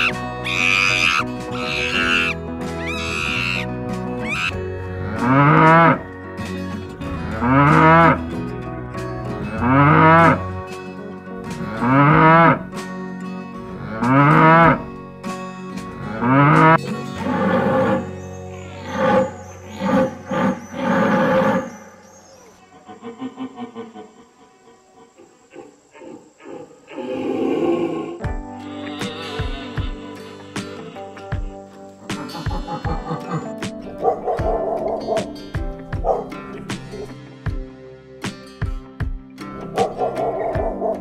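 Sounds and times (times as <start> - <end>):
background music: 0.0 - 22.7, 28.2 - 41.0
cow mooing: 4.3 - 6.1, 7.3 - 8.2, 9.5 - 10.4, 11.6 - 12.7, 13.8 - 14.8, 16.0 - 21.8, 26.9 - 31.3.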